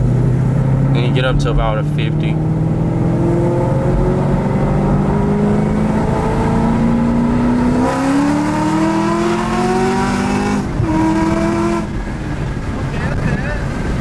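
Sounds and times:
car engine accelerating: 0.0 - 14.0.

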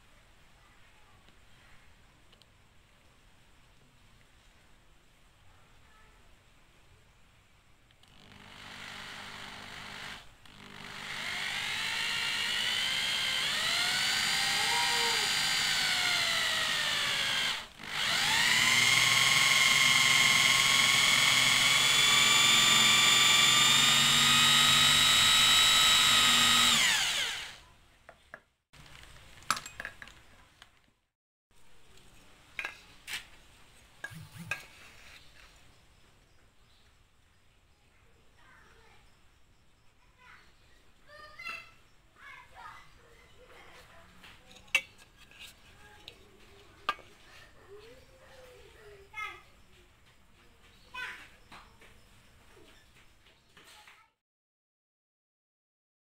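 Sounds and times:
electric drill boring into wood: 8.0 - 27.6.

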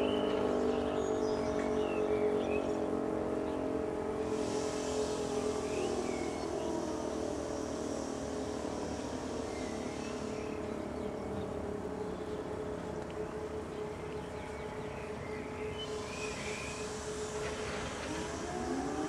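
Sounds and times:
motor siren steady tone: 0.0 - 19.0
rushing hiss: 4.2 - 10.8, 15.8 - 19.0
faint chirps: 13.3 - 18.8.

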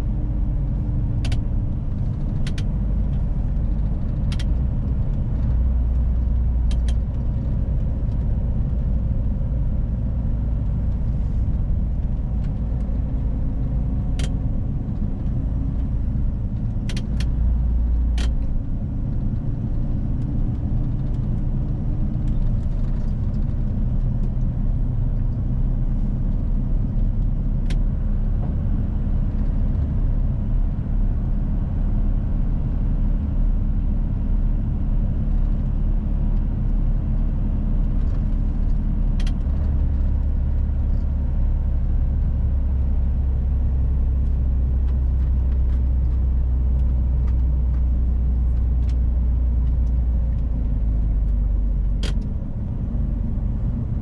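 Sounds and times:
diesel truck engine droning: 0.0 - 54.0
sharp clicks and knocks: 1.2 - 5.6, 16.6 - 18.6, 51.3 - 52.4.

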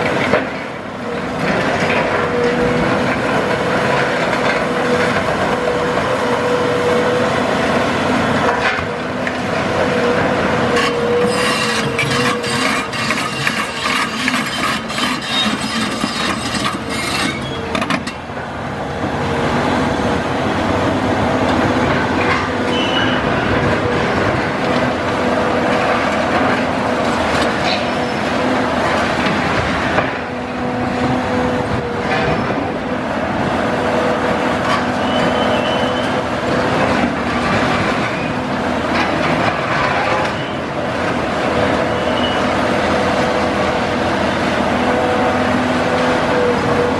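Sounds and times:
excavator engine droning: 0.0 - 46.9.

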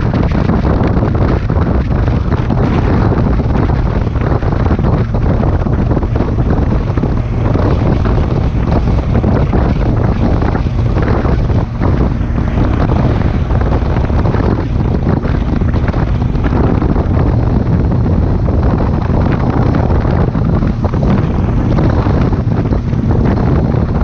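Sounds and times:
motorcycle engine running: 0.0 - 24.0
wind buffeting microphone: 0.0 - 24.0.

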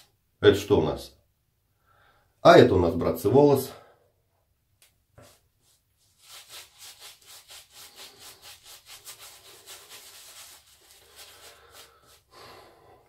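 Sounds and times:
shaving brush scrubbing stubble: 5.2 - 12.4.

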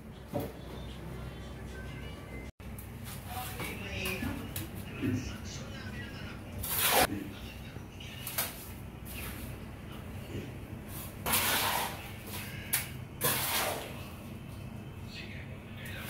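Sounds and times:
trowel scraping wet mortar: 6.6 - 7.1, 11.0 - 12.5, 13.2 - 14.0.

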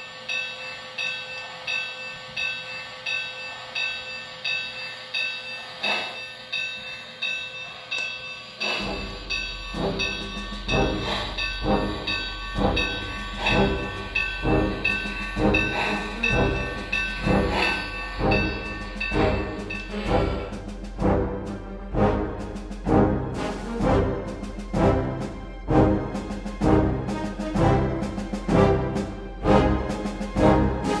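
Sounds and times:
model train steam chuffs: 0.0 - 21.6
steady low hum: 0.0 - 30.9.

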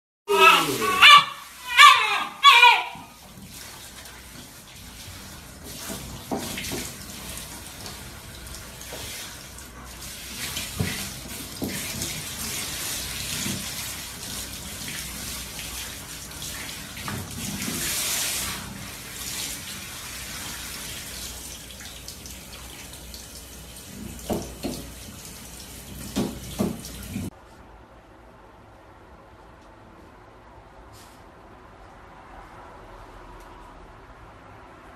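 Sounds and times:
shower water spraying on dog: 0.3 - 27.3.

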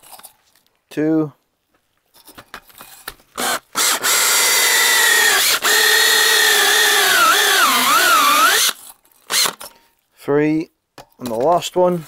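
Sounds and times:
electric drill whining: 3.4 - 9.7.

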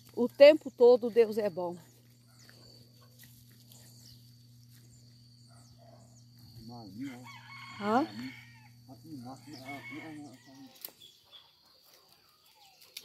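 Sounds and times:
high insect tone: 0.0 - 13.0
footsteps on dirt path: 1.7 - 6.6.

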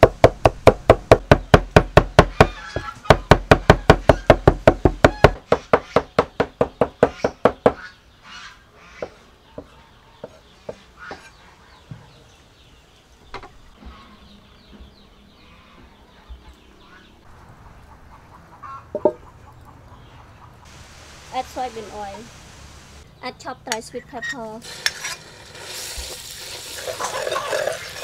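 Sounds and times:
faint bird calls: 5.0 - 12.5, 13.2 - 20.8.

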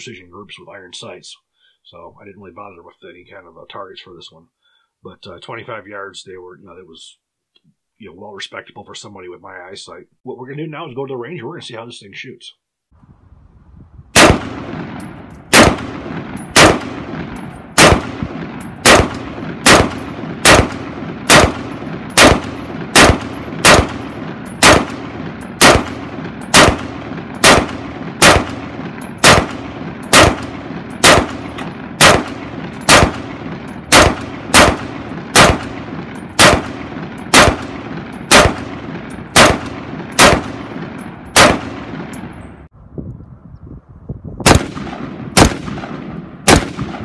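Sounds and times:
rifle shots with echo: 14.2 - 42.5, 44.4 - 47.0.

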